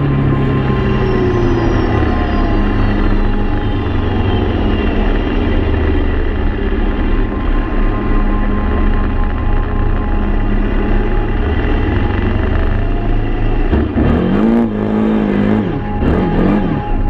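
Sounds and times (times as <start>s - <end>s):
quad bike engine revving: 11.3s - 17.0s.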